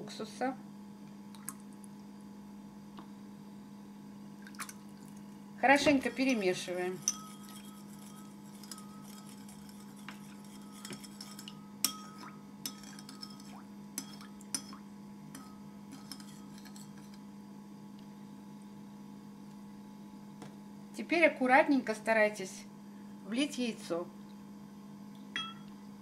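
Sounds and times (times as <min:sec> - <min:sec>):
spoon clinking against bowl: 0:05.9 - 0:17.2, 0:25.4 - 0:25.7.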